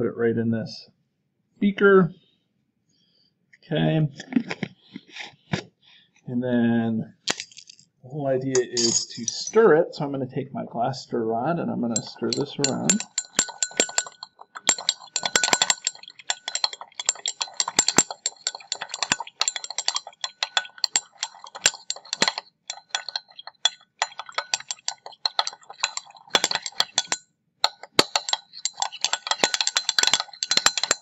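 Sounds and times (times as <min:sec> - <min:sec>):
glass rod clinking in glass beaker: 0:08.5 - 0:09.6, 0:11.9 - 0:31.0.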